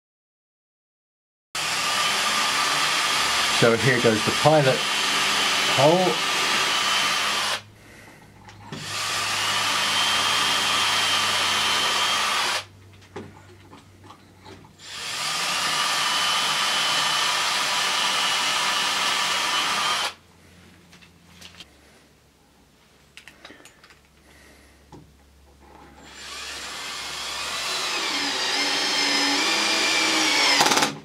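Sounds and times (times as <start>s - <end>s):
cordless drill boring into wood: 1.6s - 7.6s, 8.7s - 12.7s, 14.8s - 20.2s, 26.0s - 31.0s.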